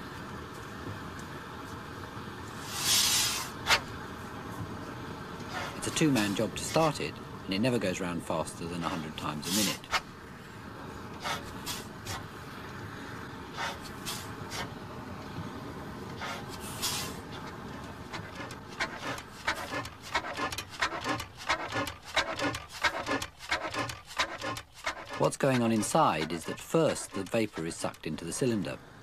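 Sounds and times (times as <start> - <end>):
engine hissing: 2.6 - 3.9, 9.1 - 10.2, 10.8 - 28.8
engine clicks and puffs: 16.1 - 28.5.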